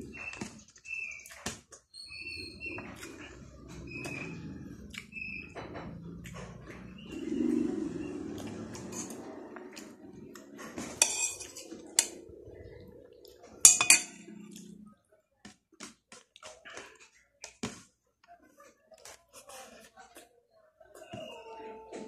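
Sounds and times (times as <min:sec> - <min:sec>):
low hum: 0:03.6 - 0:15.0
metal spoon clinking on plate: 0:11.0 - 0:12.2, 0:13.6 - 0:14.3.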